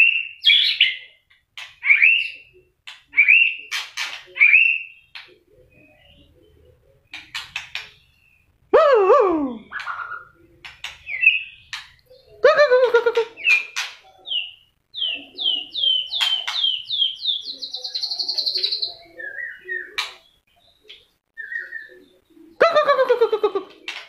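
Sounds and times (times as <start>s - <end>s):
bird singing whistled notes: 13.4s - 20.0s, 21.4s - 22.1s.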